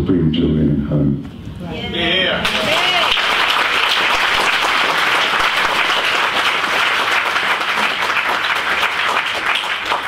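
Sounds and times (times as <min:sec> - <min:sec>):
audience applauding: 0:02.4 - 0:10.0.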